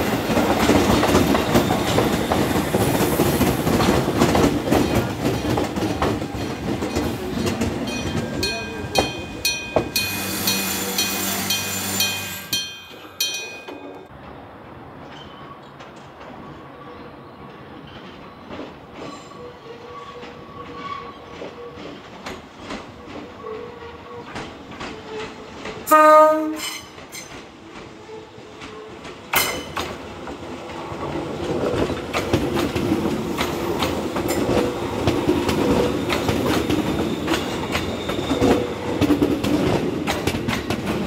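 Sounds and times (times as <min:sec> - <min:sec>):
wheels clicking over rail joints: 0:00.0 - 0:11.2, 0:28.6 - 0:41.0
electric train passing: 0:00.0 - 0:19.2, 0:25.8 - 0:41.0
train horn blast: 0:25.9 - 0:26.8.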